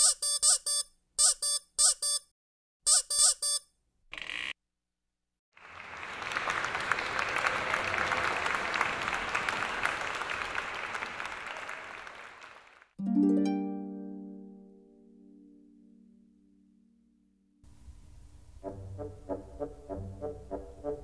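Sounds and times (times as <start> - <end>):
audience applause: 5.6 - 13.0
harp chord plucked: 13.0 - 17.2.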